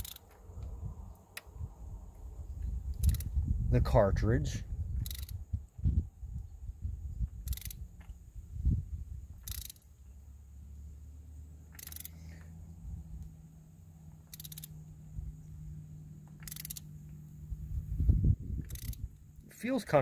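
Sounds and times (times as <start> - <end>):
socket ratchet clicking: 0.0 - 0.4, 2.9 - 3.3, 5.0 - 5.4, 7.4 - 7.8, 9.4 - 9.9, 11.7 - 12.4, 14.2 - 14.8, 16.2 - 17.2, 18.6 - 19.2.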